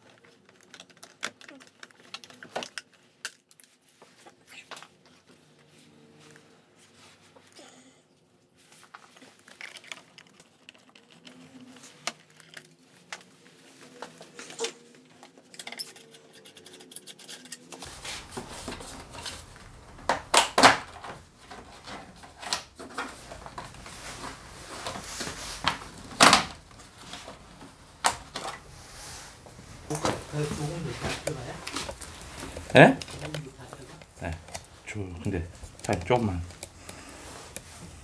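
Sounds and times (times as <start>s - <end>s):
plastic clicks and clacks: 0.0s - 3.4s.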